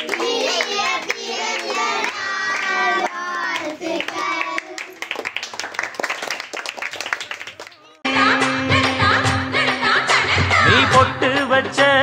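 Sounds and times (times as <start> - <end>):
children singing: 0.0 - 4.9
hands clapping: 0.0 - 8.0.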